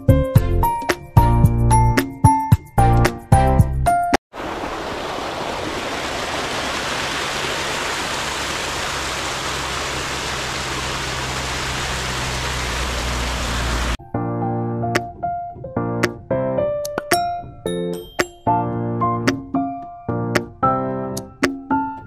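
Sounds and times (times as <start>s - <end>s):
waterfall rushing over rocks: 4.4s - 14.0s.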